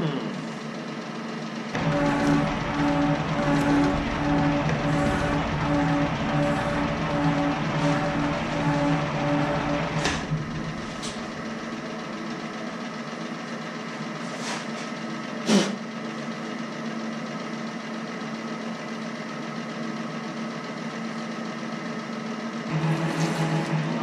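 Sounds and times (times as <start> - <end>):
machine drive humming: 1.7 - 12.6, 22.7 - 24.0.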